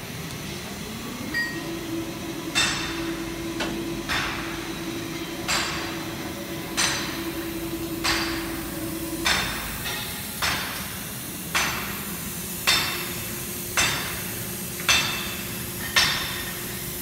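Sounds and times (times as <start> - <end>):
welding machine hum: 0.0 - 17.0
metallic strikes on steel: 6.7 - 12.0, 12.6 - 16.6.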